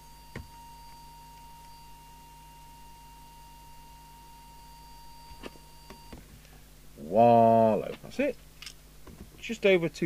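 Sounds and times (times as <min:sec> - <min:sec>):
faint test tone: 0:00.0 - 0:06.2.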